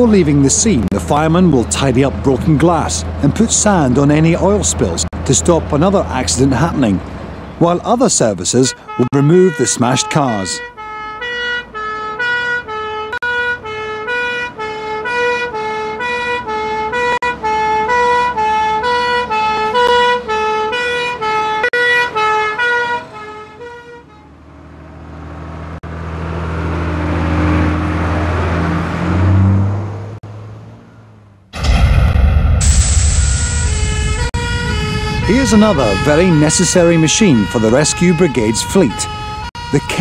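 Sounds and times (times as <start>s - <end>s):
diesel engine driving past: 0.0s - 9.0s, 10.4s - 40.0s
tyres on wet road: 0.0s - 31.5s, 33.8s - 40.0s
two-tone siren: 8.7s - 24.4s, 32.6s - 40.0s.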